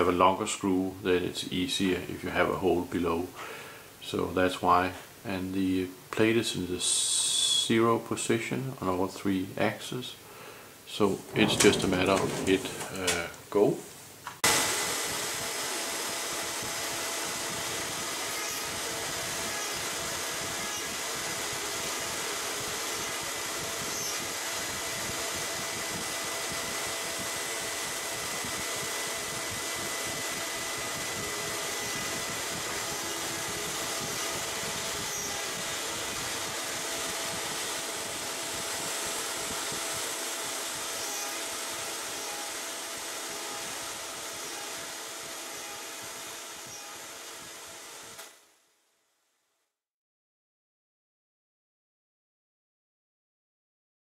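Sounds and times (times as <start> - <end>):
router spindle whining: 14.4 - 48.4.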